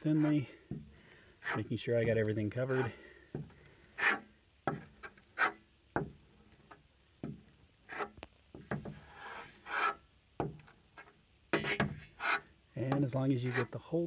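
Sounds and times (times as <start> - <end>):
putty knife scraping strokes: 0.0 - 0.4, 1.4 - 1.7, 2.6 - 3.0, 4.0 - 5.6, 7.9 - 8.2, 8.9 - 10.0, 11.0 - 12.5, 13.4 - 13.8.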